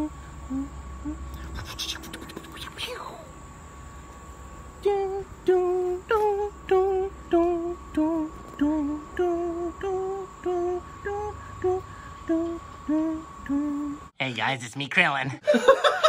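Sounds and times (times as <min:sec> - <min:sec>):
person singing a simple tune: 0:00.0 - 0:01.6, 0:04.8 - 0:14.1
faint steady whine: 0:00.0 - 0:16.0.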